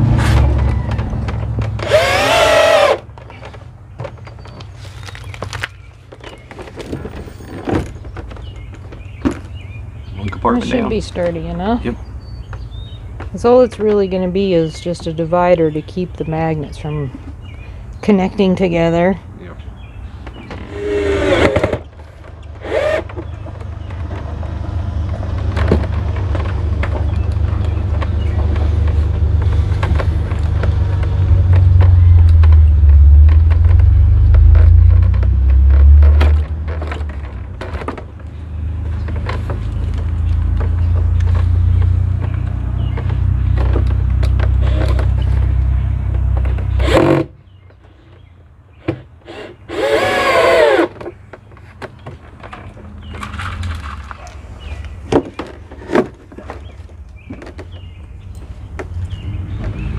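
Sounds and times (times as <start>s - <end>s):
low rumble: 0.0s - 2.2s
knocks and handling clatter: 0.0s - 11.8s, 20.1s - 59.9s
cordless drill whine: 1.8s - 3.0s, 49.3s - 50.9s.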